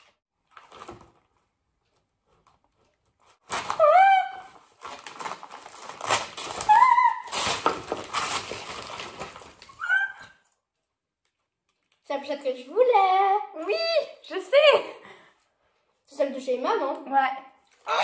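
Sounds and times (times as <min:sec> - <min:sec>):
wrapping paper crackling and tearing: 0:00.4 - 0:01.5, 0:02.3 - 0:10.4.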